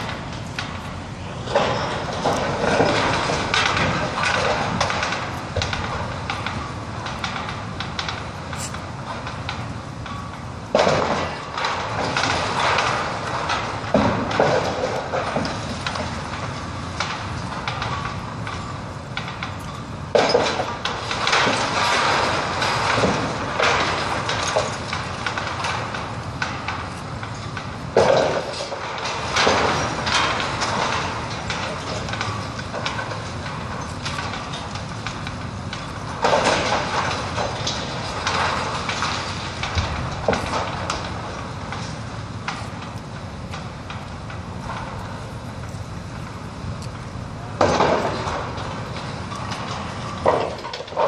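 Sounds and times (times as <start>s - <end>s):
demolition rumble: 0.0s - 51.0s
brick debris crashing and clattering: 35.7s - 41.9s, 47.6s - 51.0s.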